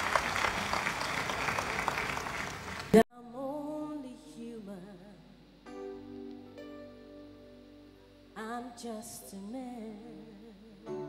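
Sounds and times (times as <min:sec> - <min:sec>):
congregation clapping: 0:00.0 - 0:03.0
woman singing gospel: 0:03.0 - 0:05.5, 0:08.4 - 0:11.0.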